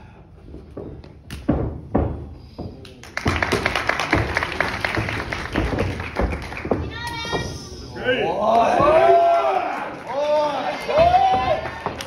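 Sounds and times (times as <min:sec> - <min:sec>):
crowd clapping: 0:02.9 - 0:07.3, 0:08.5 - 0:12.0.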